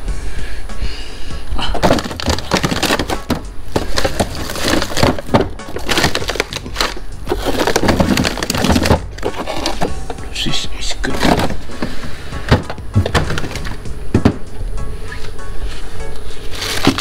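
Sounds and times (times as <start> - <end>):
plastic packets crinkling: 1.7 - 10.2, 16.4 - 17.0.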